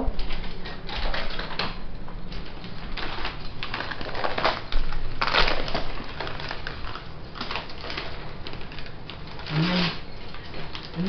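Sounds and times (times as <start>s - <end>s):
wrapping paper crinkling: 2.4s - 11.0s.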